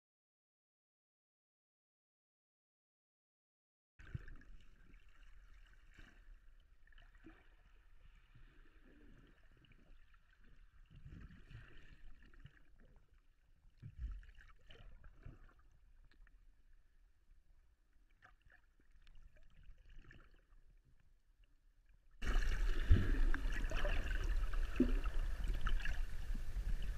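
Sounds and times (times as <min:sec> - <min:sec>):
muffled underwater sloshing: 0:04.0 - 0:26.9
low underwater bump: 0:22.2 - 0:26.9.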